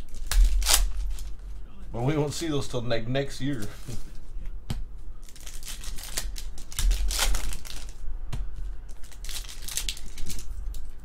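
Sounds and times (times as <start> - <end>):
foil wrappers crinkling: 0.0 - 1.5, 5.2 - 8.0, 8.9 - 11.0.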